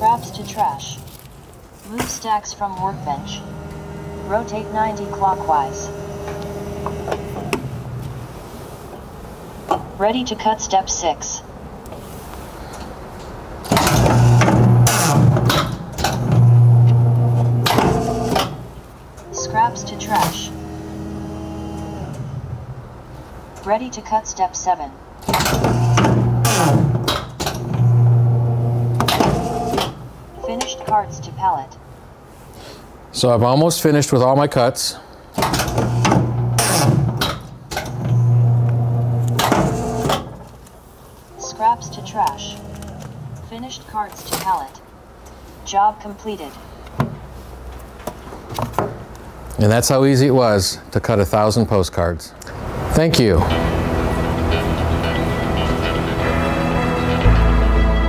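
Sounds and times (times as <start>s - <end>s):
paper cutter motor humming: 2.8s - 8.0s, 20.5s - 22.2s.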